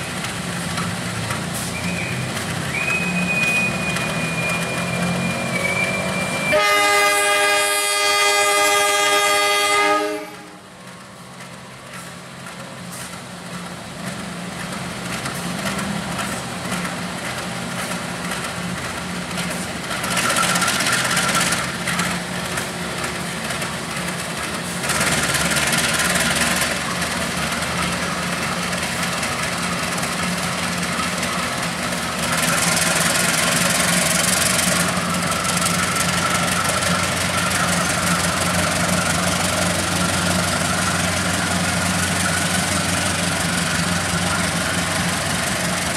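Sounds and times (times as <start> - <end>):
locomotive hiss: 0.0 - 7.6, 10.2 - 45.9
locomotive engine running: 0.0 - 45.9.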